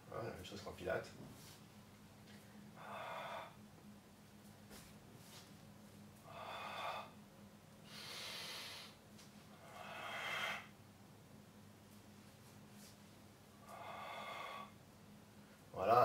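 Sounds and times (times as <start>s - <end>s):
man breathing deeply: 2.6s - 3.6s, 6.2s - 7.2s, 7.8s - 10.8s, 13.6s - 14.8s.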